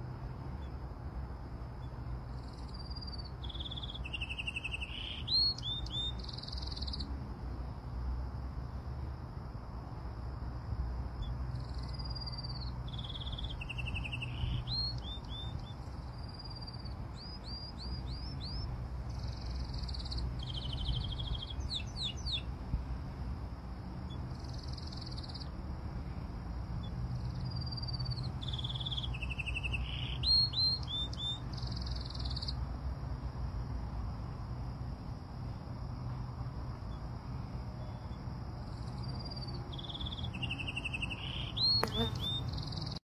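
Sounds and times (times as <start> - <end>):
songbird singing: 1.6 - 7.2, 11.2 - 22.8, 23.9 - 26.1, 26.7 - 32.7, 36.8 - 43.0.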